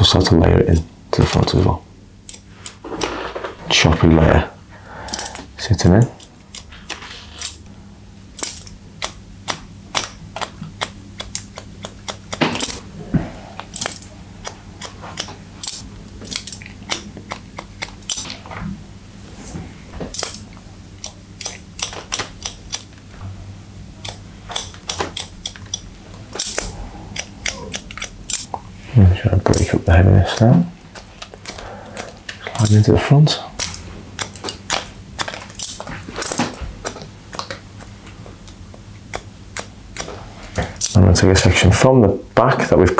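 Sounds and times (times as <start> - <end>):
scissors snipping hair: 2.3 - 3.1, 6.1 - 7.6, 8.4 - 12.8, 13.6 - 18.3, 20.2 - 23.0, 24.0 - 28.6, 29.5 - 32.8, 33.6 - 40.1.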